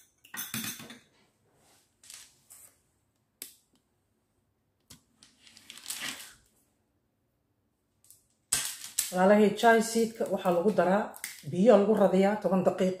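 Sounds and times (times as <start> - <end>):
spoon and glass bowls clicking: 0.0 - 1.0.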